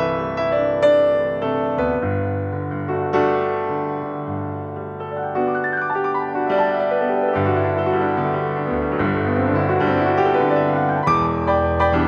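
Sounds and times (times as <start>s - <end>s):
piano music: 0.0s - 12.0s.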